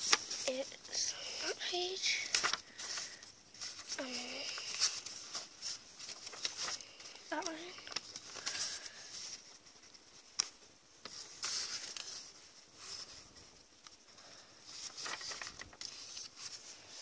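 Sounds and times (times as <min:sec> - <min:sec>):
paper pages rustling: 0:00.0 - 0:17.0.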